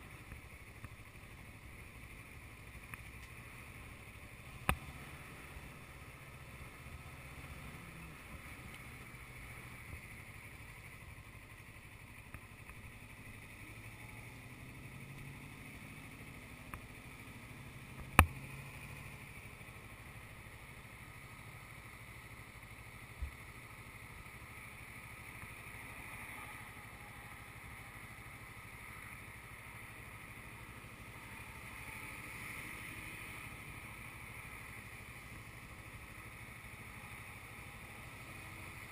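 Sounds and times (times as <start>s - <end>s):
motorcycle engine idling: 0.0s - 38.9s.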